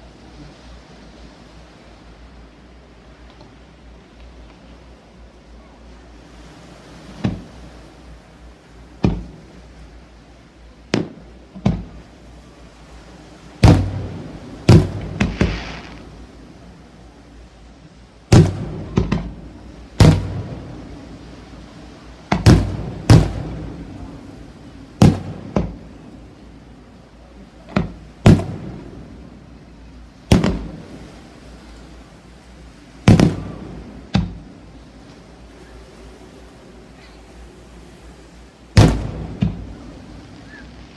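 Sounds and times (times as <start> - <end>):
firework shells bursting: 14.7 - 16.1, 18.3 - 19.4, 20.0 - 20.7, 22.3 - 23.9, 27.7 - 28.8, 30.3 - 30.8, 33.1 - 34.4, 38.8 - 40.9.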